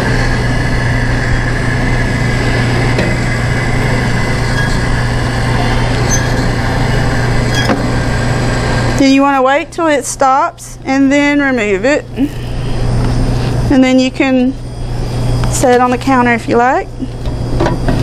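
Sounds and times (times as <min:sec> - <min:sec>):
machine motor hum: 0:00.0 - 0:09.7.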